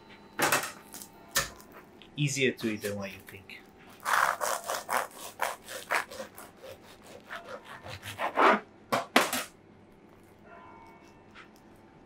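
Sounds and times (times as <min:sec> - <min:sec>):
knife sawing through crusty bread: 0:03.9 - 0:08.6.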